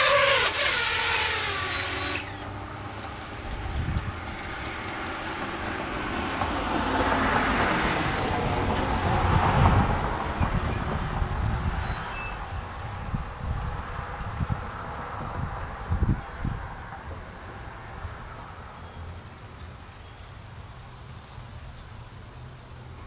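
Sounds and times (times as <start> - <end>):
drone propellers whining: 0.0 - 2.7.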